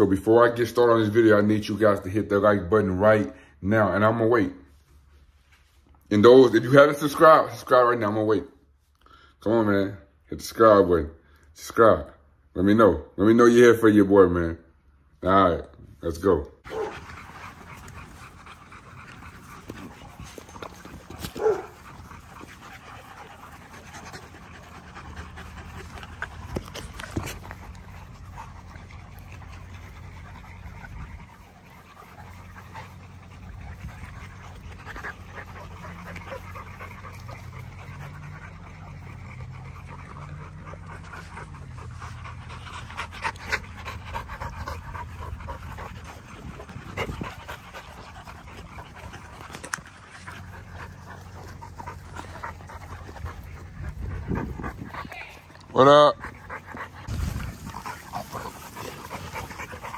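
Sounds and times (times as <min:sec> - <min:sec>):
puppies panting: 0:16.6 - 0:59.9.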